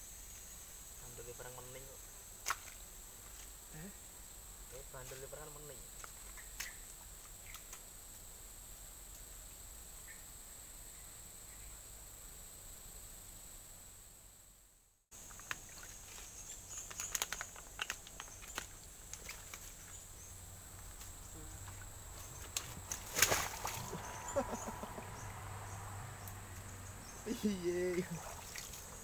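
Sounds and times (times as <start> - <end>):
high insect drone: 0.0 - 29.0
footsteps wading through water: 21.6 - 24.3, 27.9 - 29.0.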